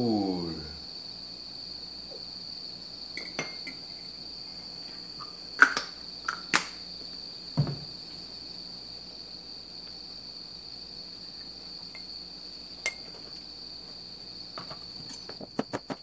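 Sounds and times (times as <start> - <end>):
steady high-pitched whine: 0.0 - 16.0
kitchenware clinking on steel counter: 3.2 - 3.9, 12.8 - 13.2
dull knock: 7.6 - 8.0.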